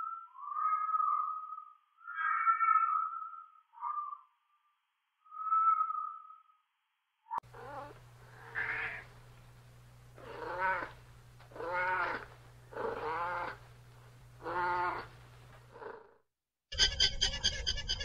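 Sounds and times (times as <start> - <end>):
cat meowing: 7.6 - 9.1, 10.2 - 12.3, 12.9 - 13.6, 14.4 - 15.1.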